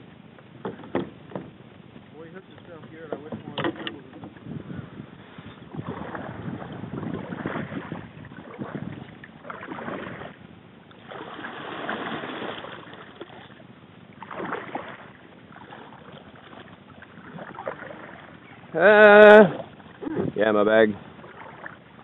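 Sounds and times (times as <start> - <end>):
water lapping against kayak hull: 0.2 - 22.0
wind buffeting microphone: 1.4 - 10.5, 17.1 - 21.4.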